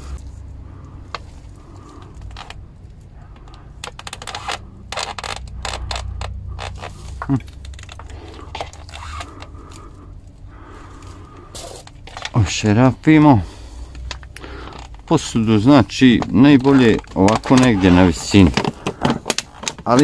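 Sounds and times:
plastic bottle handled: 10.9 - 12.5, 16.0 - 20.0.

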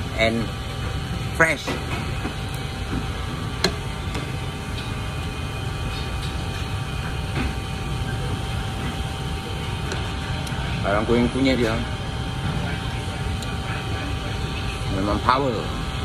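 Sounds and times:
electric fan running: 0.0 - 16.0.

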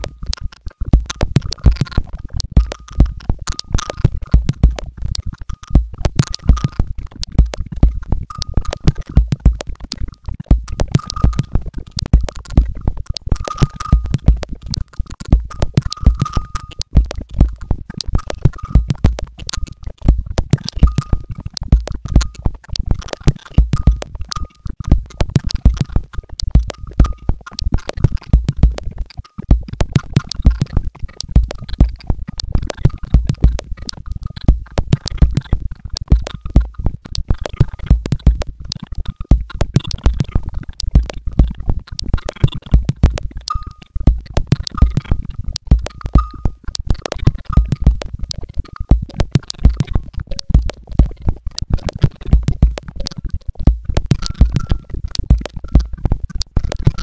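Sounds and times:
crackling clicks: 0.0 - 57.0
faint recurring tone: 46.1 - 46.6.

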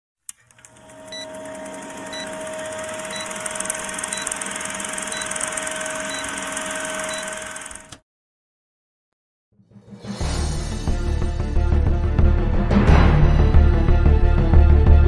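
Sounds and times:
film projector whirring clatter: 0.3 - 8.0
short high beeps: 2.1 - 2.4, 3.0 - 7.5.

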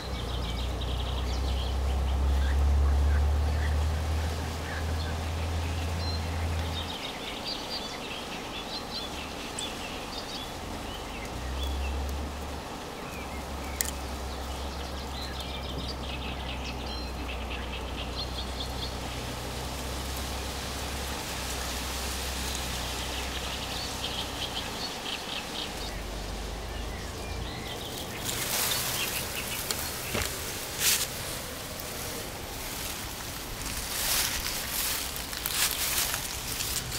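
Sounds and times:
small birds chirping: 0.0 - 36.9
steady low rumble: 9.8 - 36.9
rustling: 19.0 - 36.9.

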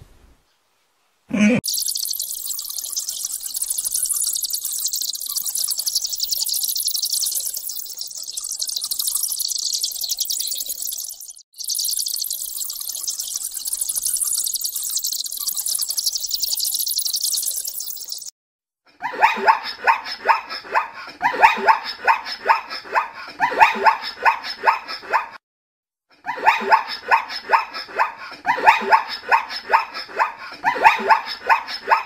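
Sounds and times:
rapid animal calls: 1.3 - 18.3
high fast-pulsing buzz: 1.6 - 18.3.

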